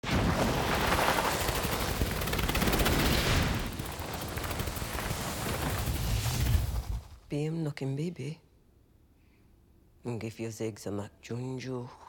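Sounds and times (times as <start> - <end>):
rapid rattling clatter: 1.0 - 7.0.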